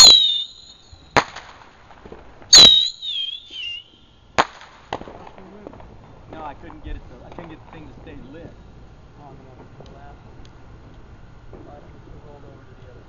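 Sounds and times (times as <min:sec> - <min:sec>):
falling firework whistle: 0:00.0 - 0:01.6, 0:02.5 - 0:04.8
firework bangs: 0:00.0 - 0:06.2
weak firework pops: 0:01.1 - 0:02.9, 0:04.4 - 0:06.0.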